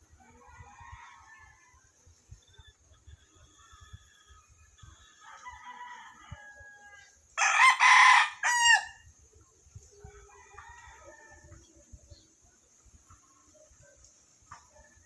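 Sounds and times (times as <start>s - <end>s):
rooster crowing: 5.2s - 9.0s, 10.2s - 11.5s.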